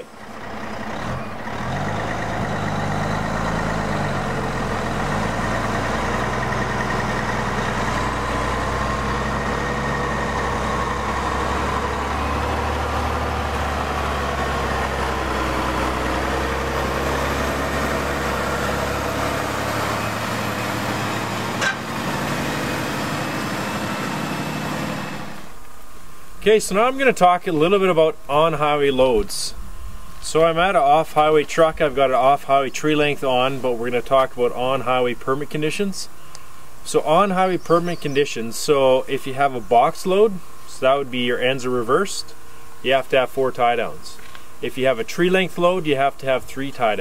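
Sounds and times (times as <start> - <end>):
diesel truck engine driving past: 0.0 - 25.6.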